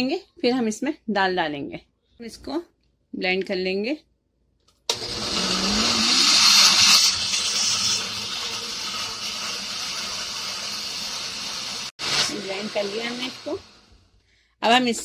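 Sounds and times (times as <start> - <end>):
blender grinding: 4.9 - 14.0.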